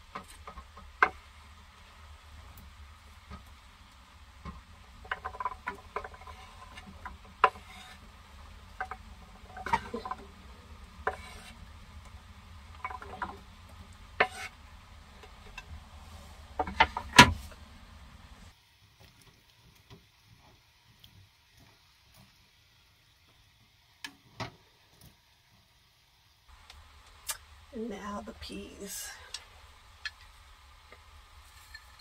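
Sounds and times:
utensil scraping cutting board: 5.2s - 8.1s, 11.0s - 11.8s, 14.2s - 14.6s.

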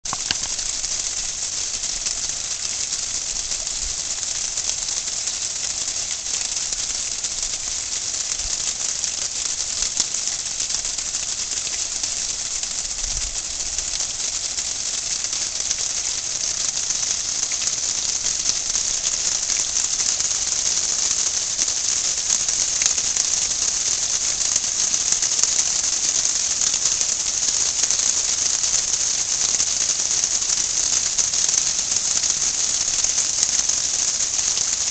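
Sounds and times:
garden fountain splashing: 0.0s - 34.9s.

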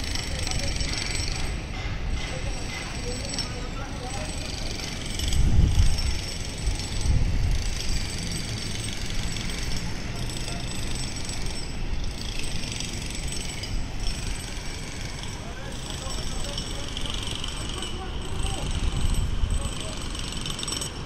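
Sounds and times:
wind buffeting microphone: 5.2s - 8.1s, 18.0s - 20.0s.

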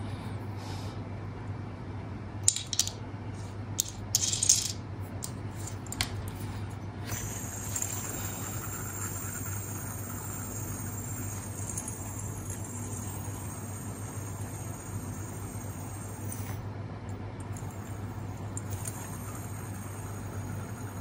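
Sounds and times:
metal parts clicking and clinking: 2.4s - 3.0s, 3.8s - 6.2s
fidget spinner whirring: 3.8s - 16.6s, 17.5s - 21.0s.

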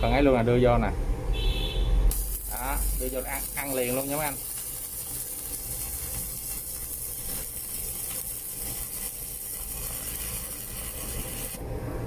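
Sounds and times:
welding arc hissing: 2.1s - 11.7s.

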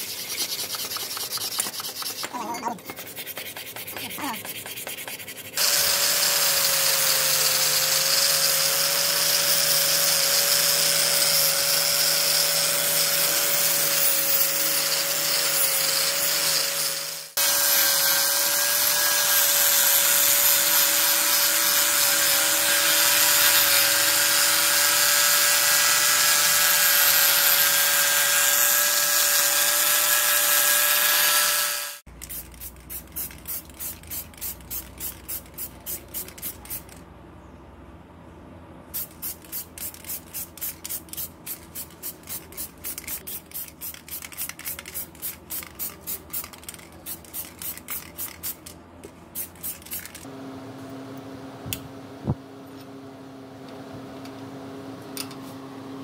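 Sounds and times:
hand rubbing or scraping strokes: 0.0s - 5.6s
power tool running: 5.6s - 32.1s.

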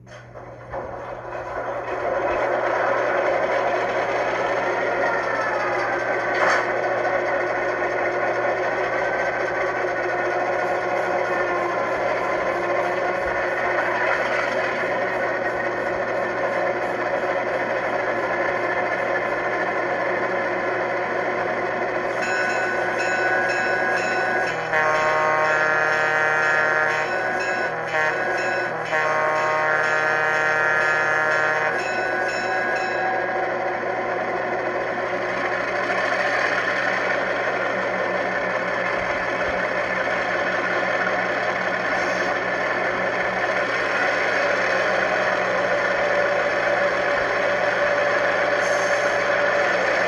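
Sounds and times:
diesel locomotive engine running: 0.0s - 50.0s
locomotive bell ringing: 3.5s - 21.0s, 21.6s - 36.0s
locomotive horn blowing: 23.9s - 33.4s.

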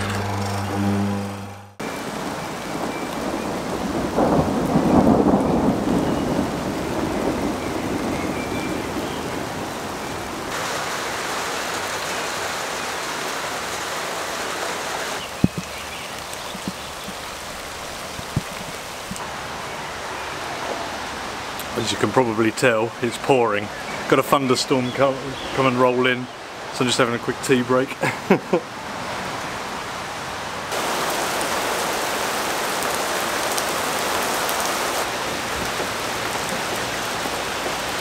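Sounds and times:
thunder rumble: 0.0s - 10.5s
heavy rain pouring: 1.7s - 38.0s.

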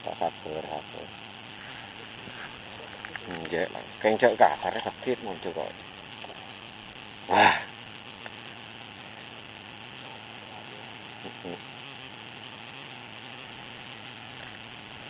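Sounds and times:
shallow water hissing: 0.5s - 9.4s.

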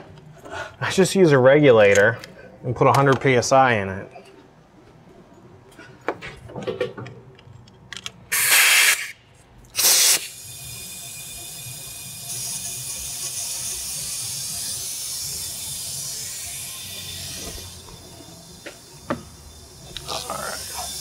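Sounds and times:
air hissing through hose: 8.3s - 9.2s, 9.8s - 21.0s
loud air blasts: 8.3s - 9.2s, 9.8s - 10.6s.

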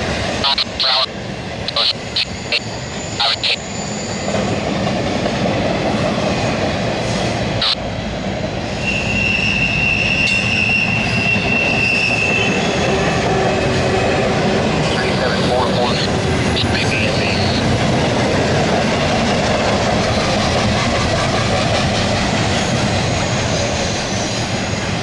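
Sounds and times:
freight train cars rolling: 0.0s - 25.0s
high wheel squeal: 2.0s - 4.6s, 8.6s - 13.4s, 22.5s - 25.0s.

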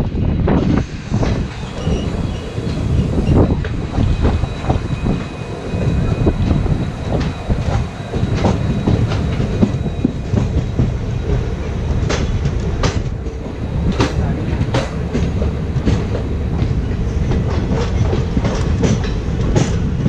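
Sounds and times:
train coaches rumbling: 0.0s - 20.0s
wheel clacks over rail joints: 1.2s - 20.0s.

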